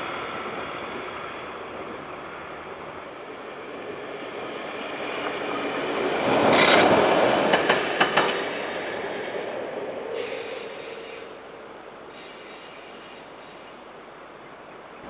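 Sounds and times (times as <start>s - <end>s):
train passing: 0.0s - 15.0s
wheels clicking on rails: 5.2s - 8.8s.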